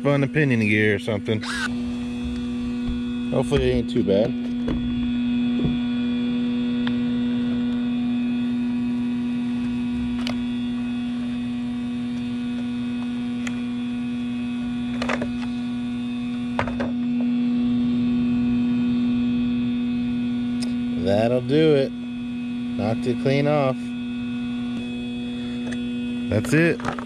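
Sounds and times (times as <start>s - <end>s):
steady pitched hum: 0.0s - 27.0s.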